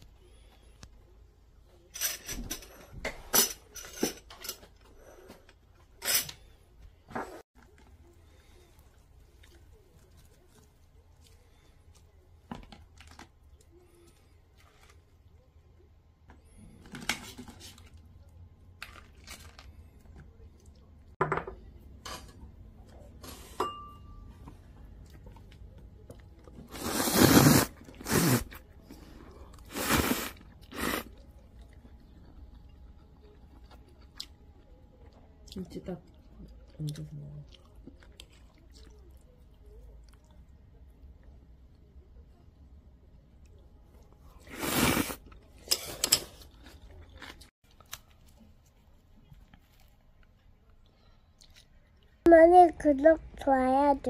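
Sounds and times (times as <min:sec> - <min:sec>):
tableware clinking: 0:23.3 - 0:24.3.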